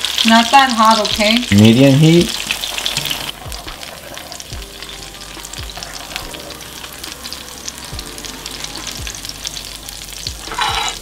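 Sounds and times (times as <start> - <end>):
tortilla sizzling in oil: 0.0 - 11.0
spatula moving in pan: 10.4 - 11.0.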